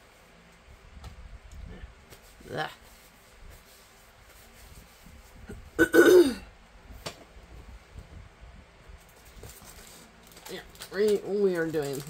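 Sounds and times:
person clearing throat: 5.8 - 6.5
faint handling noise: 6.9 - 12.0.

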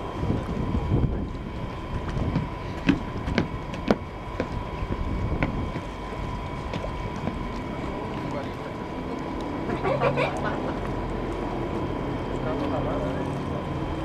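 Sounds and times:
wind rumbling on microphone: 0.0 - 9.5
faint high whine: 0.0 - 14.0.

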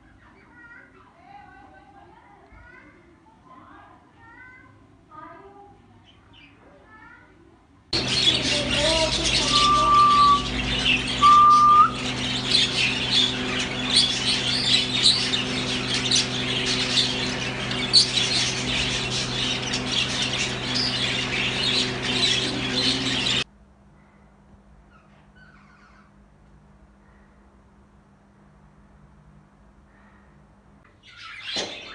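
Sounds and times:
budgerigars chattering and chirping: 8.0 - 23.4
steady hum: 8.0 - 23.9
short steady whistles: 9.4 - 12.1.

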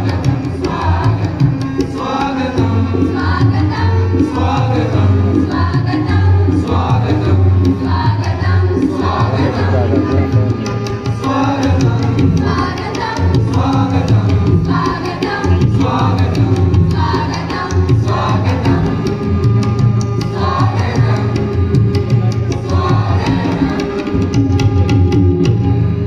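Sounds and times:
children's choir singing: 0.0 - 24.4
hand drum beat: 0.0 - 26.0.

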